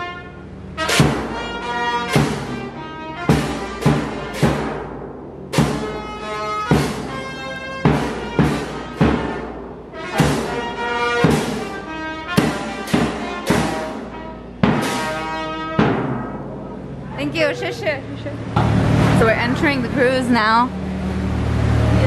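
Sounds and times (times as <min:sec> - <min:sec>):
brass band playing a march: 0:00.0 - 0:16.4
hand cymbals crashing: 0:00.8 - 0:17.0.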